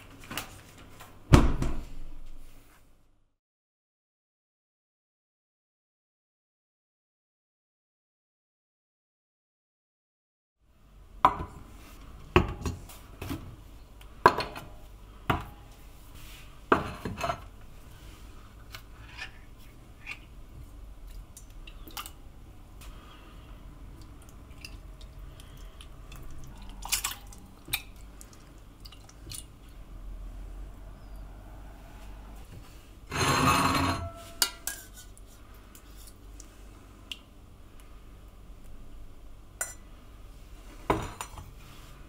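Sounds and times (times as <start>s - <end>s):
saucepan and tin clinking: 33.6s - 35.1s.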